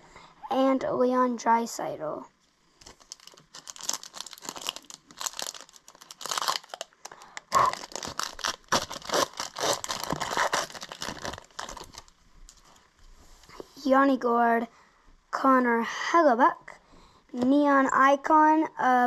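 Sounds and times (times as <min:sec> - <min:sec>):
foil wrapper crinkling and tearing: 0:02.8 - 0:12.8.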